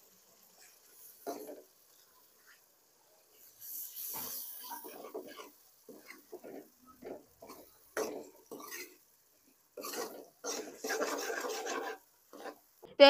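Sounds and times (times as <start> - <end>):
ladle scraping metal wok: 3.5 - 9.1, 9.8 - 12.7.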